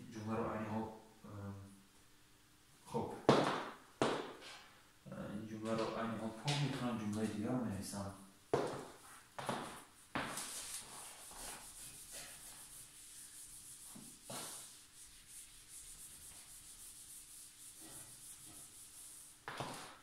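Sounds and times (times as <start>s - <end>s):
eraser rubbing on whiteboard: 8.6s - 20.0s.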